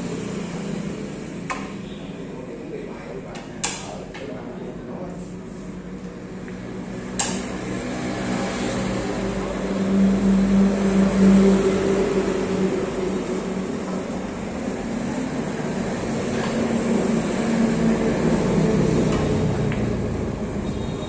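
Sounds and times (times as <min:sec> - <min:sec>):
passing vehicle engine hum: 0:05.7 - 0:21.0.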